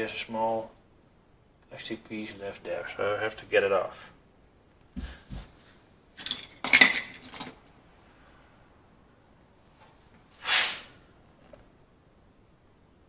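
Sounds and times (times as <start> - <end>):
metal tools clinking on workbench: 6.2 - 7.6
short scrape: 10.3 - 11.0.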